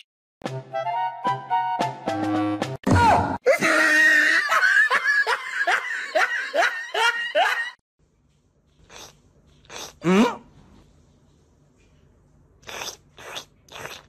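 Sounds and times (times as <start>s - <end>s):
person laughing hard: 3.5s - 7.8s.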